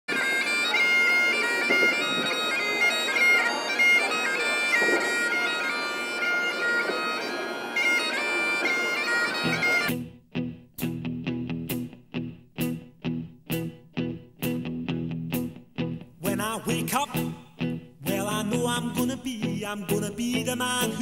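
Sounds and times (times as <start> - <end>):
bagpipe drones: 0.1 - 10.1
bagpipe melody: 0.1 - 10.2.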